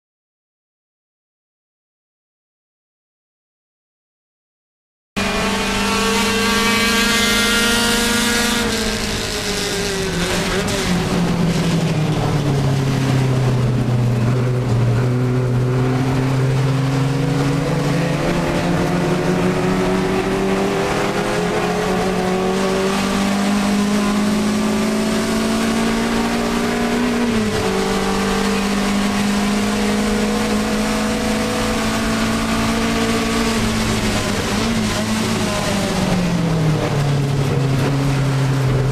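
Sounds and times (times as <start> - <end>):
car engine revving: 5.2 - 38.9.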